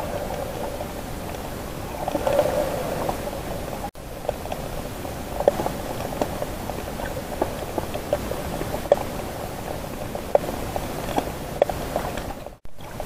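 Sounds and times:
underwater hiss: 0.0s - 3.9s.

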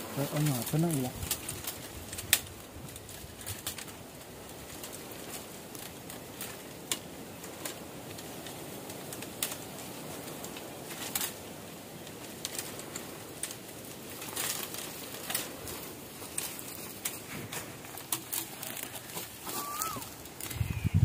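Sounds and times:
outdoor hiss: 0.0s - 1.3s
bamboo stems creaking and snapping: 0.0s - 21.0s.

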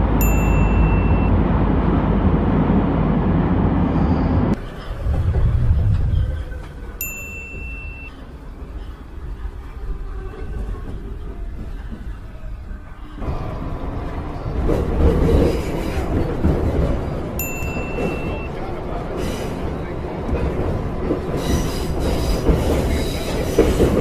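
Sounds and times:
subway train rumbling: 0.0s - 24.0s
short electronic ding: 0.2s - 1.3s.

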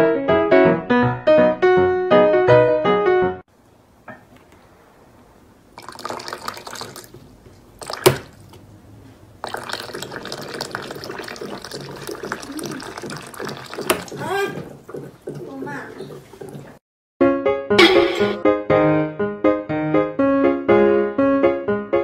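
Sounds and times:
water running from tap: 5.8s - 8.6s, 9.4s - 16.8s.

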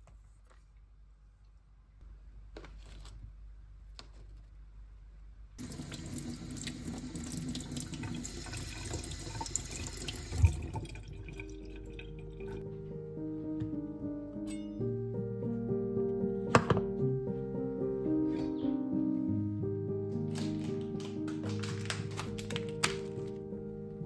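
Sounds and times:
tap water splashing into sink: 5.6s - 11.4s
soft background music: 10.2s - 24.0s.

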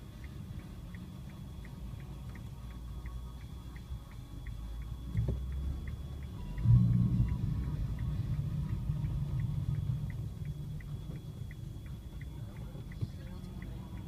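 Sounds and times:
car engine and road rumble: 0.0s - 14.0s
light regular ticking: 0.0s - 14.0s.

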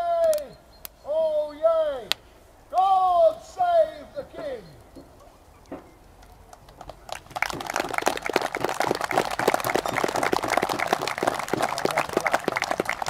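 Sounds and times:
crowd applauding: 6.3s - 13.0s.

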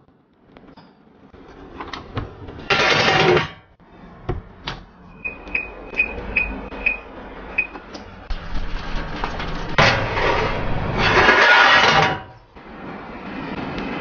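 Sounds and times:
metal oven rack scraping: 1.5s - 3.7s, 8.2s - 14.0s
oven control panel beeping: 5.1s - 8.0s.

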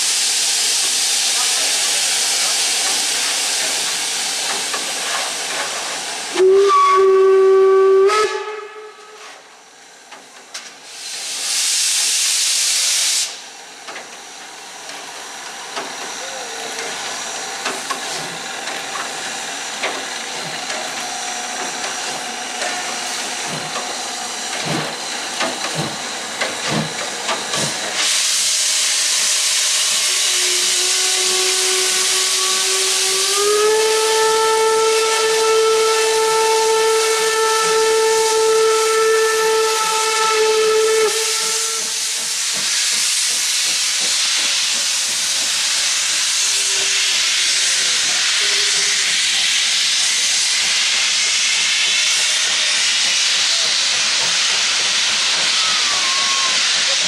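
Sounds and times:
locomotive steam hissing: 0.0s - 57.0s
steam whistle blasts: 6.3s - 9.4s, 29.6s - 42.2s, 55.4s - 57.0s.

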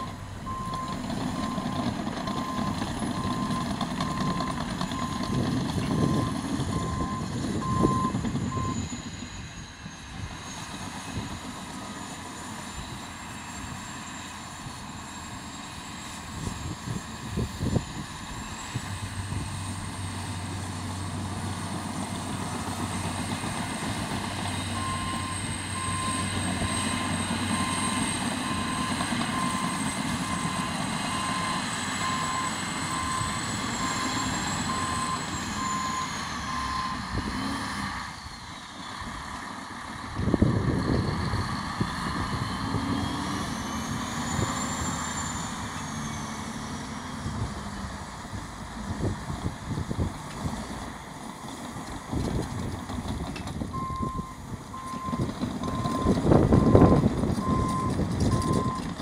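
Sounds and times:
reversing alarm beeping: 0.0s - 9.4s, 24.6s - 37.2s, 53.7s - 58.9s
heavy diesel engines running: 0.0s - 59.0s.

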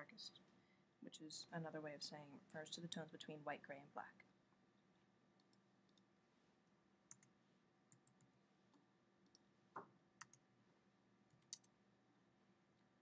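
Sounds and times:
faint room hum: 0.0s - 13.0s
mouse clicks: 7.1s - 7.3s, 9.2s - 10.4s, 11.3s - 11.8s.

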